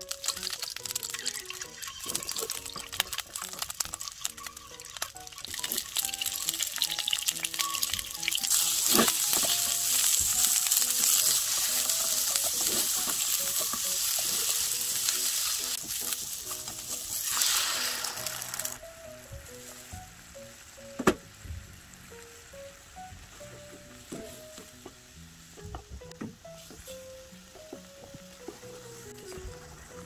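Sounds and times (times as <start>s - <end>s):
food sizzling in hot oil: 0.0s - 25.6s
water hissing in hot pan: 0.0s - 25.6s
chopsticks stirring in pan: 0.1s - 17.3s.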